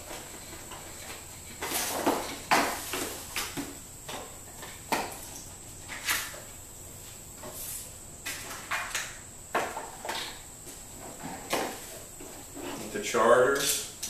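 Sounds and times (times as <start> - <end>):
cardboard scraping and knocking: 0.0 - 5.1.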